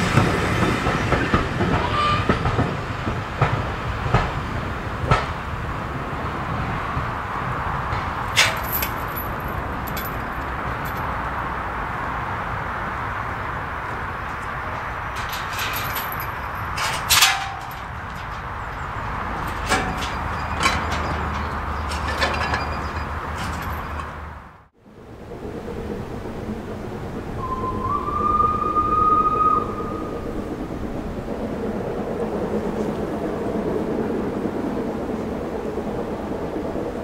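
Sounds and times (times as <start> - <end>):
steady rushing noise: 2.8 - 37.0
metal gate clanks: 8.0 - 11.2, 13.9 - 24.6.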